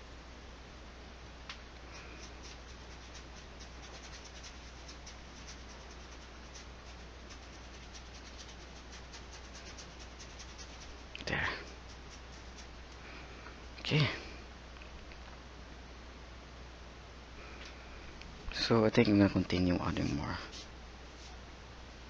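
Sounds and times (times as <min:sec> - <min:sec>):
brush dabbing paint on canvas: 0:01.9 - 0:13.0.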